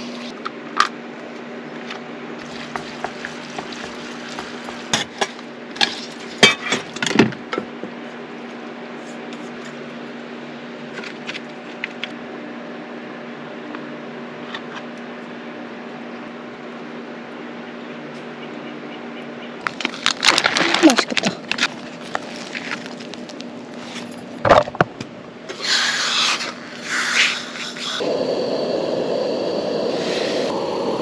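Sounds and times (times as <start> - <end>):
steady low hum: 26.4 - 31.0.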